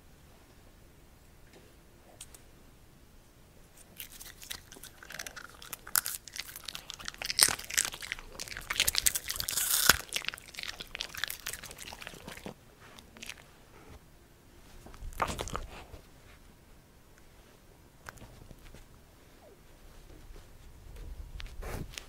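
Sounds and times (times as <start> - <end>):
dogs crunching popcorn: 3.8 - 13.5, 14.9 - 16.0.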